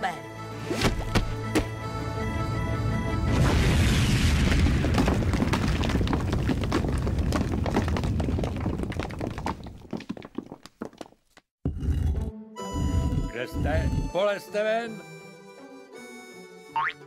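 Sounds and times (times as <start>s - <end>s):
deep volcano rumble: 3.3s - 10.5s
falling rocks clattering: 3.6s - 11.4s.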